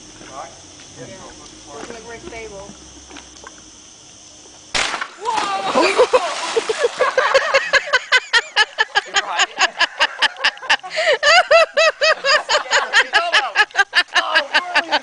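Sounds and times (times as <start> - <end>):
person laughing hard: 5.7 - 15.0.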